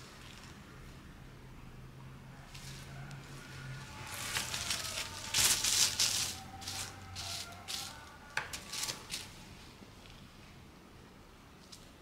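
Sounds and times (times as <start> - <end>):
plastic bag crinkling: 4.0 - 9.3.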